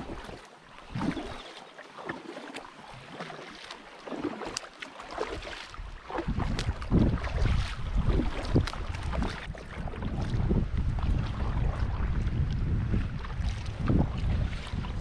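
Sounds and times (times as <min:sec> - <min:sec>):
paddle strokes splashing water: 0:00.0 - 0:15.0
wind buffeting microphone: 0:05.7 - 0:15.0.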